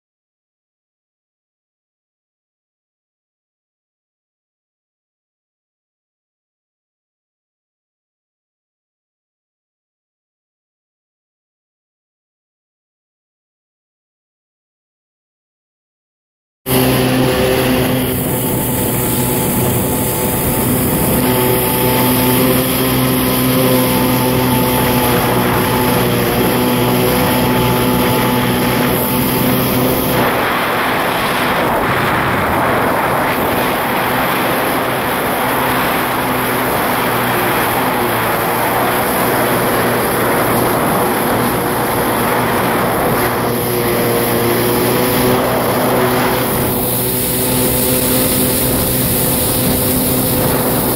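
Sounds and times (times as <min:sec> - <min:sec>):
jet ski engine running: 0:16.7 - 0:50.9.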